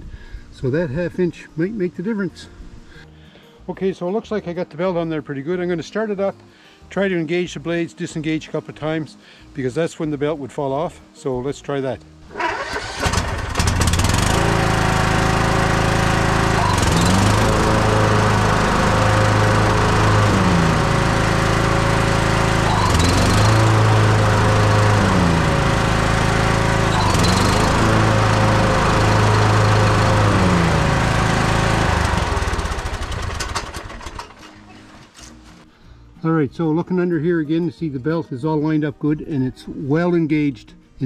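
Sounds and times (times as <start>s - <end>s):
riding mower engine running: 12.3s - 35.3s.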